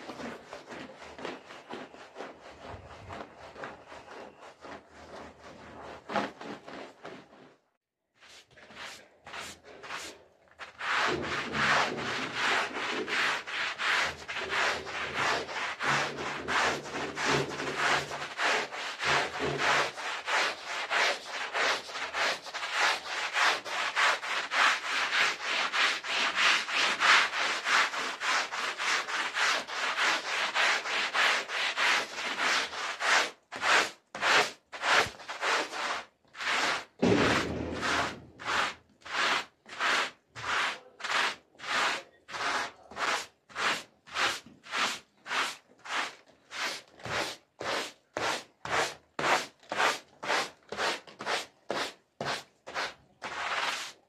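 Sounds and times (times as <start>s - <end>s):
brush scrubbing a wet rug: 0.0s - 54.0s.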